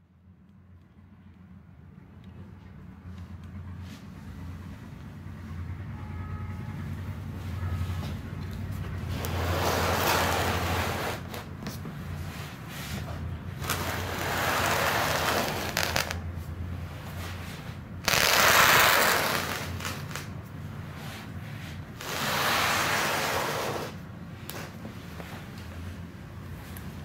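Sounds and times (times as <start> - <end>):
cardboard box scraping on table: 9.1 - 11.5.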